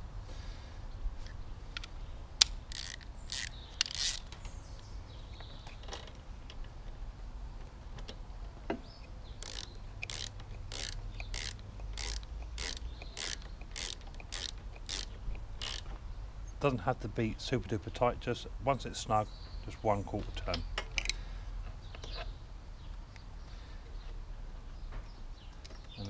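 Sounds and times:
spanner clicking: 0:01.8 - 0:04.3, 0:09.0 - 0:15.9.

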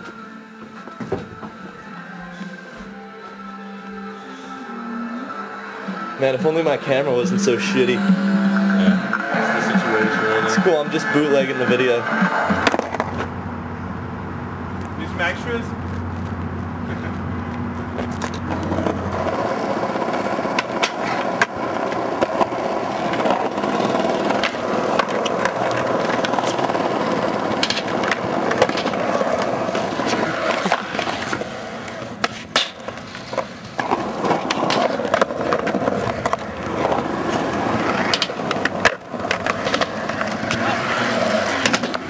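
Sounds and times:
skateboard wheels rolling on concrete: 0:06.2 - 0:42.0
skateboard clacking on ground: 0:11.6 - 0:13.3, 0:18.0 - 0:42.0.

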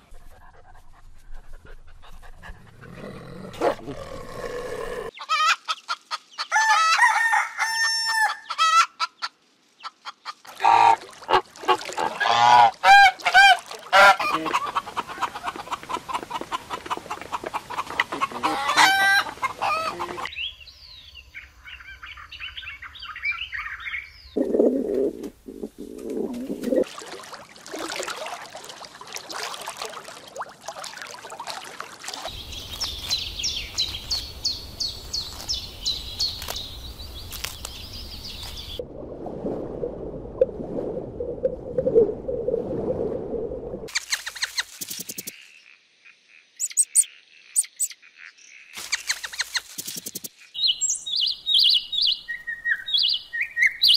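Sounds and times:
chickens clucking: 0:08.5 - 0:20.3
small birds chirping: 0:32.0 - 0:38.8, 0:43.9 - 0:53.9
wings flapping: 0:43.9 - 0:45.3, 0:48.8 - 0:50.3.

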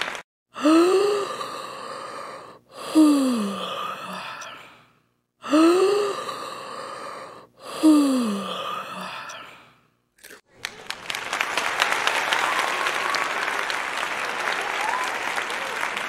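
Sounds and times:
person yawning: 0:00.6 - 0:04.8, 0:05.4 - 0:09.6.

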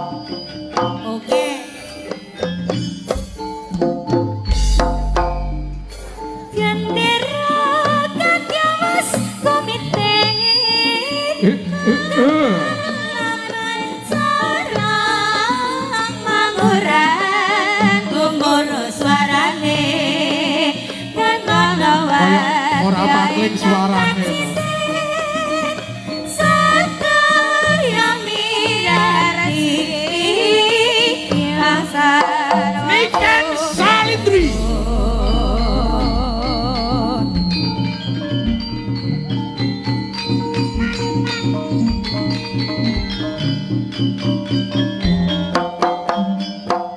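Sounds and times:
gamelan ensemble: 0:00.0 - 0:46.9
hand drums: 0:00.6 - 0:10.2, 0:28.8 - 0:46.9
deep low note: 0:04.4 - 0:06.7, 0:34.3 - 0:37.5
person singing ornamented melody: 0:11.4 - 0:12.8, 0:32.8 - 0:37.4.

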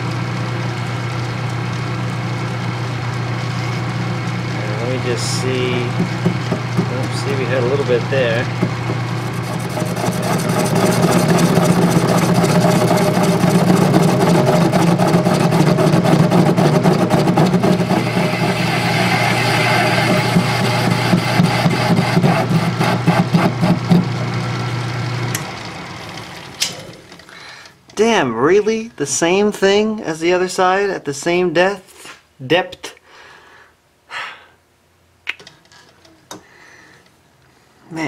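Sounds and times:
lathe motor hum: 0:00.0 - 0:26.6
tool cutting iron: 0:04.6 - 0:24.3.

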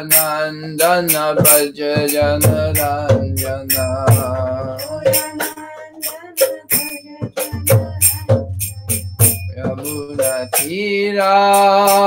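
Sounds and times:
jingling hand percussion: 0:00.0 - 0:12.0
low drum thuds: 0:02.0 - 0:05.4.

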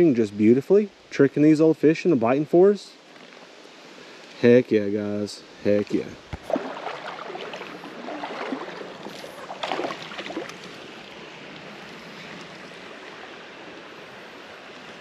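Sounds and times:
creek water running over riffle: 0:05.7 - 0:15.0.

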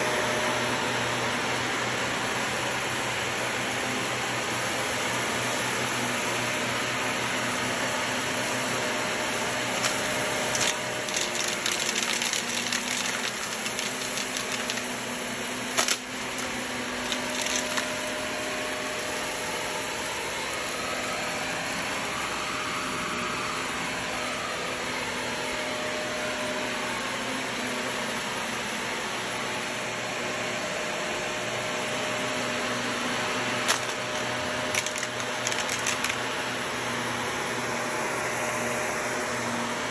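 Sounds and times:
vacuum cleaner running on carpet: 0:00.0 - 0:39.9
debris crackling in vacuum: 0:09.5 - 0:22.4, 0:33.6 - 0:36.3.

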